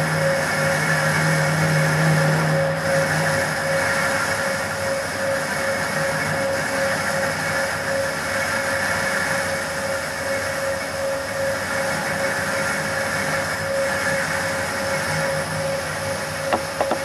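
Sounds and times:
lathe whirring: 16.5 - 17.0.

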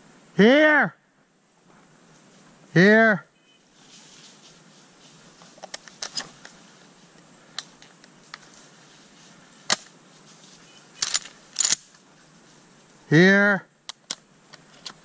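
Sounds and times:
branches brushing against clothing: 1.5 - 2.7, 3.4 - 13.1.

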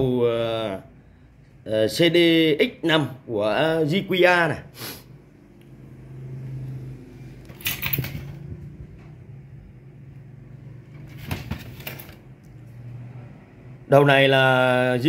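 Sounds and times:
hand knocking and rattling device: 7.6 - 9.0.

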